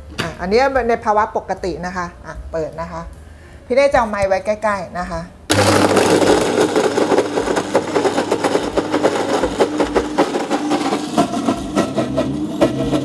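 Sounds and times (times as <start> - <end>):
blender crushing ice: 5.5 - 13.0.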